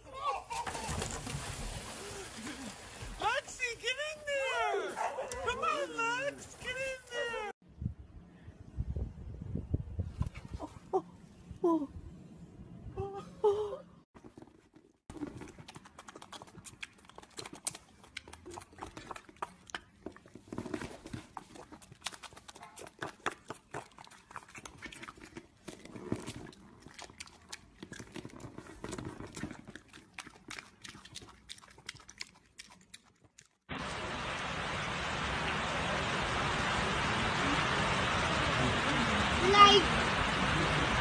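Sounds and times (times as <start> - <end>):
piglet chewing and smacking: 14.2 - 33.7.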